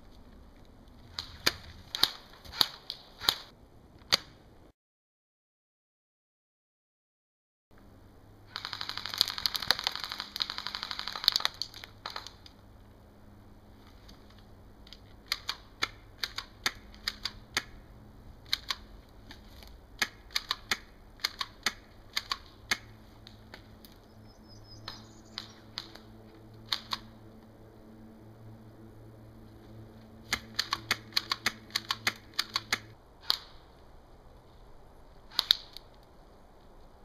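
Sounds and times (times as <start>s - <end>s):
single airsoft shots: 1.2s - 3.5s
airsoft gun full-auto burst: 8.5s - 11.5s.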